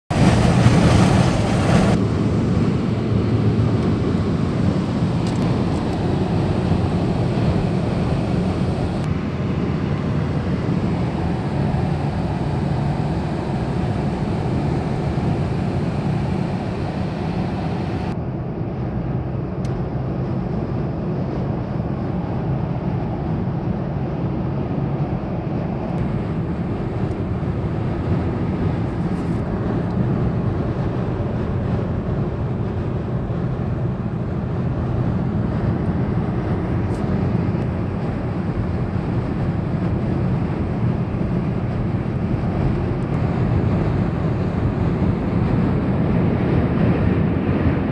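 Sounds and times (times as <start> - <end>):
car road and engine noise: 0.0 - 47.9.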